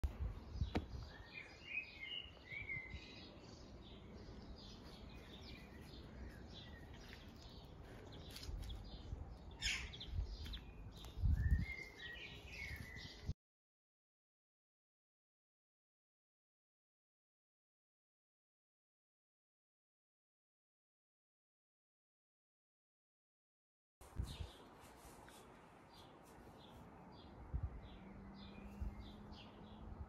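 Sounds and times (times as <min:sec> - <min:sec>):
outdoor background noise: 0:00.0 - 0:13.4, 0:24.0 - 0:30.0
birds chirping: 0:00.1 - 0:13.3, 0:24.2 - 0:30.0.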